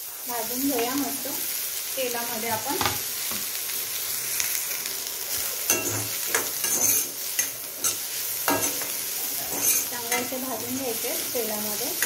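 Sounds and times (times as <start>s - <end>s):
onions sizzling in oil: 0.0s - 12.0s
spoon scraping a pan: 5.6s - 10.4s.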